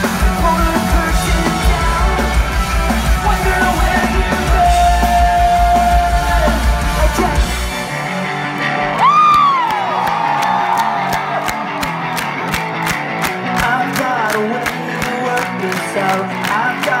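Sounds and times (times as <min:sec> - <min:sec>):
person singing: 0:00.0 - 0:07.7, 0:13.5 - 0:17.0
live pop-punk band playing: 0:00.0 - 0:17.0.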